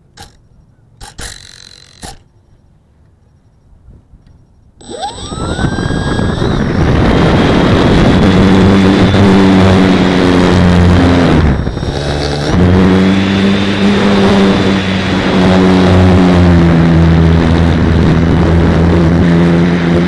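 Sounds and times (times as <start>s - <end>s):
propeller and wind rush: 3.8s - 20.0s
electric motor whine: 4.8s - 20.0s.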